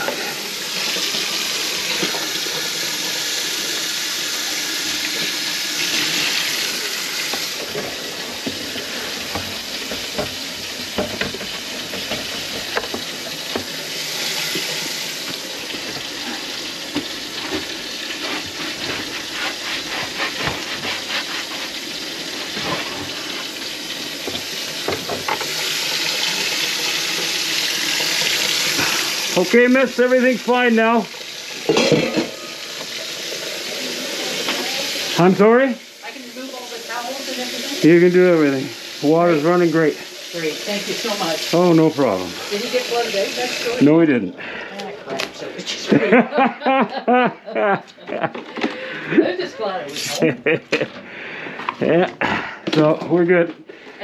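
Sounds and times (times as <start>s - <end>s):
faucet running into sink: 0.0s - 44.1s
small knocks and clatters: 9.3s - 13.7s.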